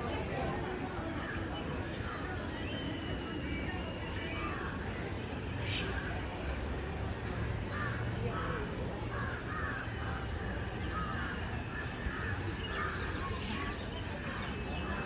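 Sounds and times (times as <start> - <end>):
crows cawing: 7.7 - 13.5.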